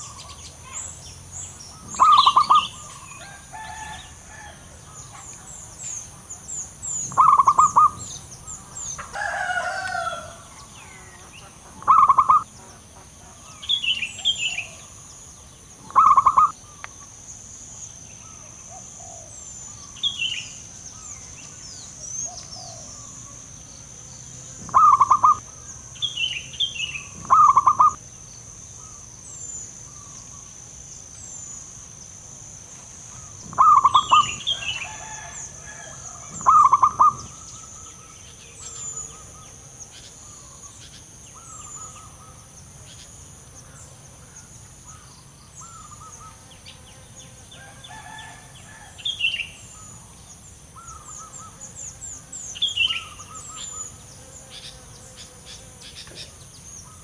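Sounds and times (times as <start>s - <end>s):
small birds chirping: 0.0s - 57.0s
dove cooing trill: 1.7s - 5.3s, 7.1s - 8.2s, 9.0s - 12.6s, 15.8s - 16.6s, 24.6s - 25.7s, 26.8s - 28.0s, 33.2s - 40.6s.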